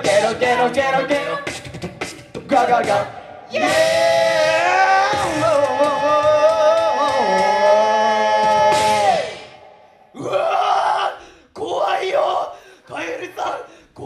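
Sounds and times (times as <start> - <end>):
a cappella group singing a chord: 0.0 - 1.7.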